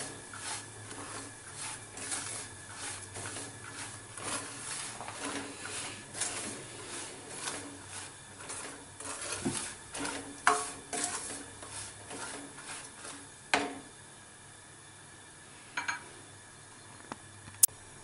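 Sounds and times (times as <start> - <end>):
plastic spatula scraping a pan: 0.0 - 13.8.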